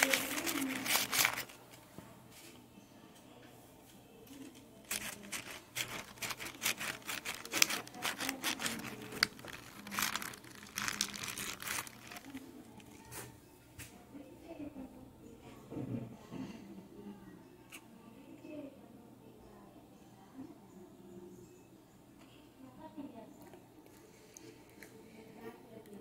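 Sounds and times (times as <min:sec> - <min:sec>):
hands squishing raw chicken: 0:04.9 - 0:12.9.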